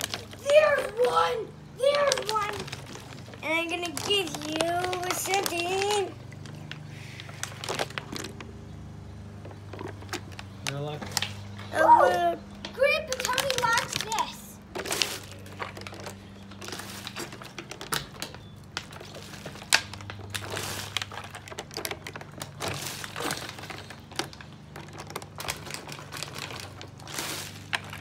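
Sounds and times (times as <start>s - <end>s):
plastic bottles crackling: 0.0s - 28.0s.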